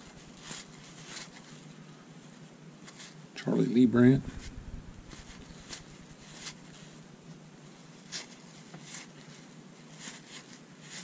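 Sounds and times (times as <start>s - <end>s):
cards sliding swishes: 4.2s - 6.9s.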